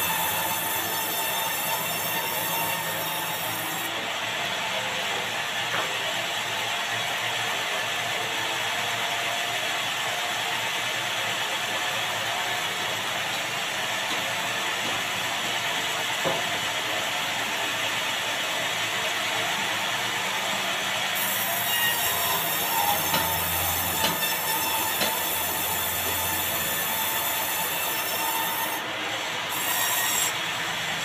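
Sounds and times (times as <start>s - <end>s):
band saw cutting timber: 0.0s - 31.0s
knock: 16.2s - 16.5s.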